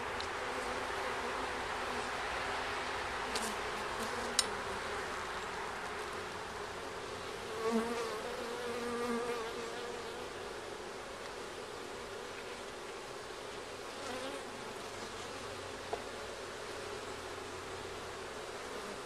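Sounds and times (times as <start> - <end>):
bees buzzing: 6.0 - 10.7
pitched bee buzz: 7.4 - 10.4.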